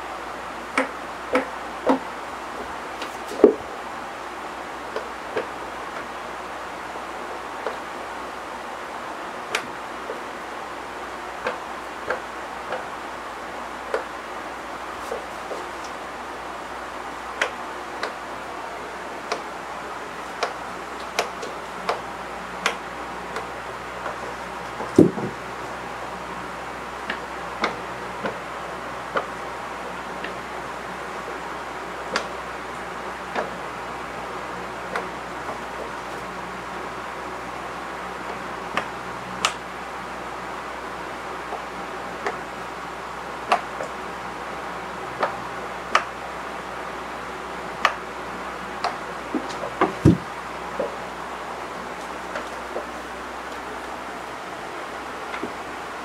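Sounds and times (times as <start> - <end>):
steady hiss: 0.0 - 56.0
cats thumping on wooden floor: 24.8 - 25.4, 49.4 - 50.9
body thumping on floor: 25.0 - 25.4, 49.9 - 50.2.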